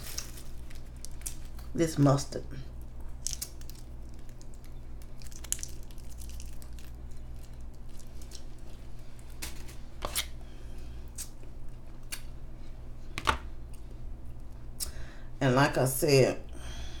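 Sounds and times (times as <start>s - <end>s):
plastic packaging crinkling: 0.0s - 1.8s, 3.1s - 10.4s
steady low hum: 0.0s - 17.0s.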